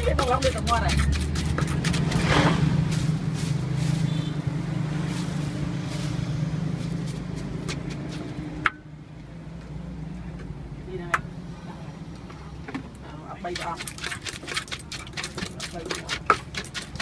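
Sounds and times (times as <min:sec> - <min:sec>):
wooden pestle knocking in mortar: 0:00.0 - 0:02.4, 0:13.5 - 0:17.0.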